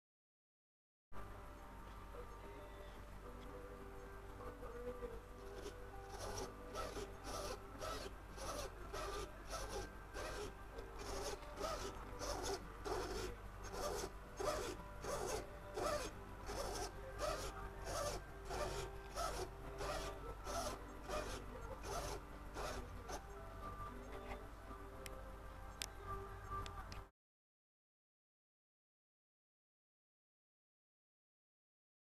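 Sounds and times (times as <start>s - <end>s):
steering servo whirring: 4.7s - 24.4s.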